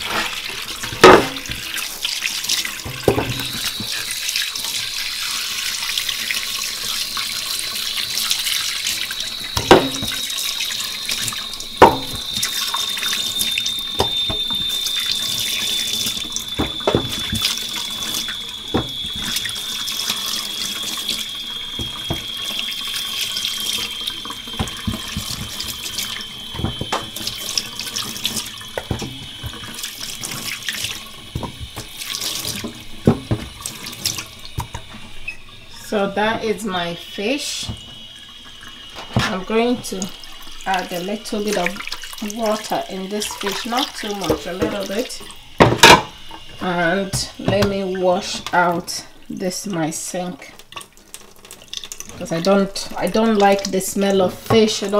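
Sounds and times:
tap running into steel sink: 0.0s - 1.8s, 2.6s - 4.1s, 9.0s - 35.4s, 41.5s - 48.7s, 54.4s - 54.9s
splashing of rinsing fish: 0.0s - 54.9s
high thin whistle: 9.1s - 24.3s.

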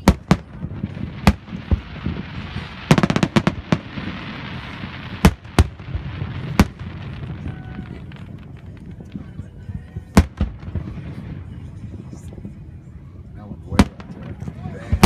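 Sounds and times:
crackling hiss: 0.0s - 9.4s.

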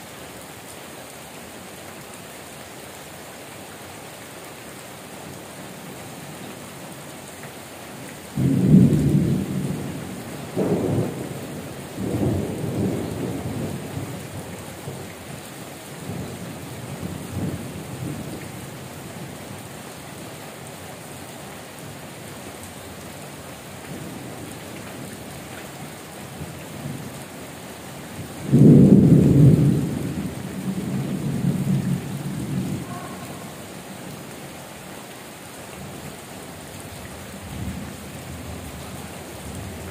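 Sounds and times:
heavy rain: 0.0s - 39.9s
thunder cracking and rumbling: 8.4s - 14.2s, 28.4s - 33.6s.

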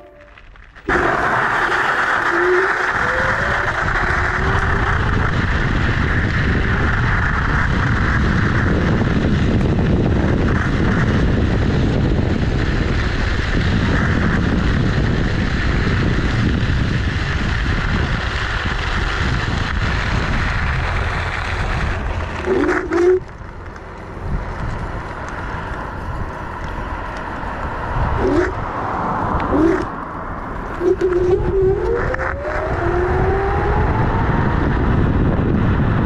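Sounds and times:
tyres crunching on gravel: 0.0s - 8.6s, 16.9s - 32.4s
wind buffeting microphone: 2.2s - 36.0s.

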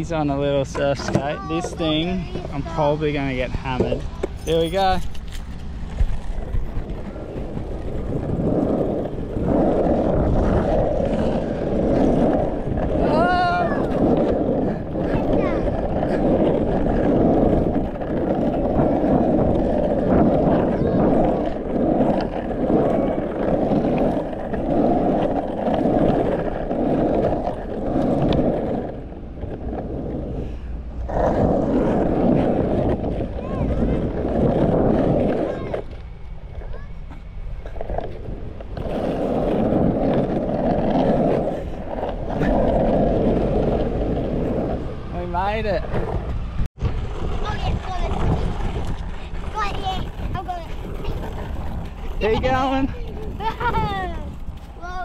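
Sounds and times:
skateboard wheels rolling: 0.0s - 55.0s.

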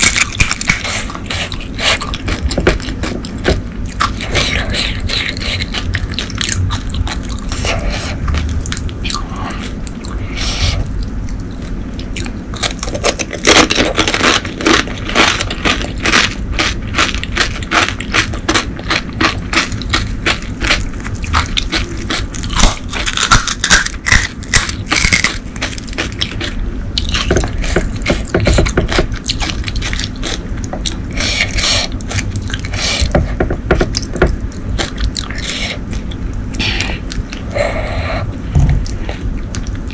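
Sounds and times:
crunchy chewing: 0.0s - 39.9s
crisp shells cracking: 12.0s - 27.4s.

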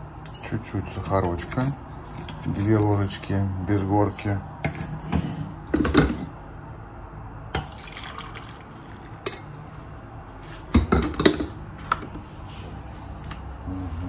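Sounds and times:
coffee pouring into glass mug: 7.6s - 9.4s.

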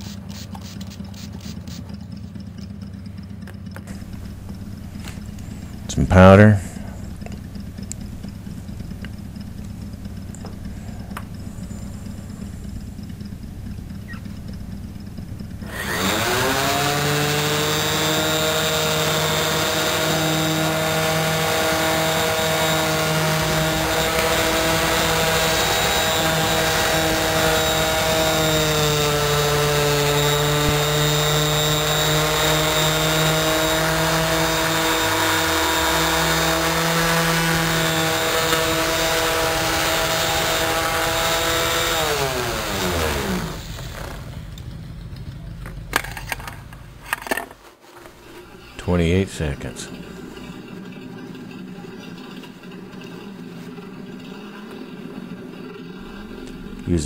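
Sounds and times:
orbital sander running: 0.0s - 2.0s, 2.8s - 44.6s, 55.9s - 57.0s.

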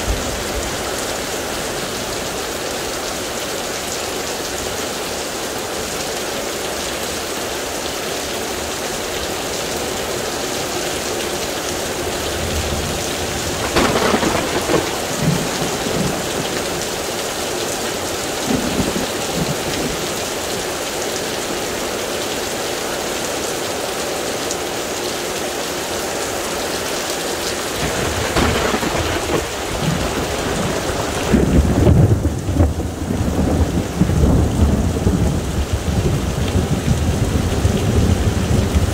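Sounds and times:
heavy rain pouring: 0.0s - 38.9s
thunder rumbling: 12.4s - 17.2s, 18.4s - 20.1s, 27.8s - 38.9s.

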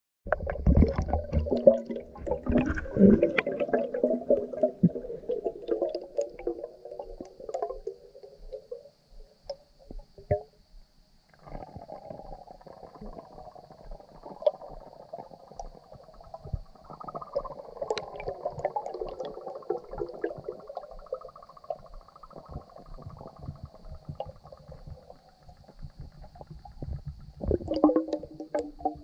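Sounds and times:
clicks underwater: 0.2s - 8.8s, 14.2s - 29.0s
underwater air bubbles gurgling: 0.3s - 10.5s, 11.4s - 29.0s.

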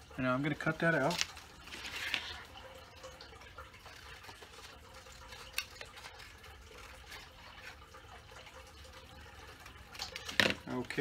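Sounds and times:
paper rustle: 0.9s - 2.4s, 3.9s - 7.8s.

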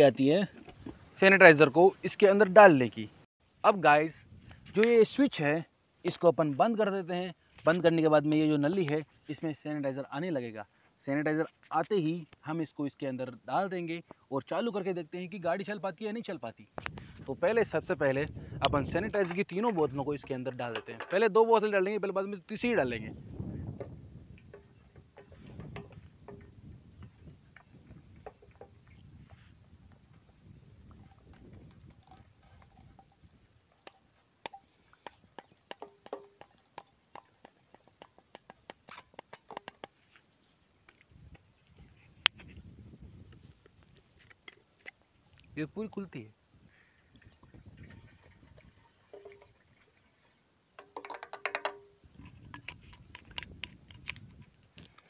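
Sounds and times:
liquid pouring with clicks: 30.1s - 37.5s, 47.1s - 50.1s.

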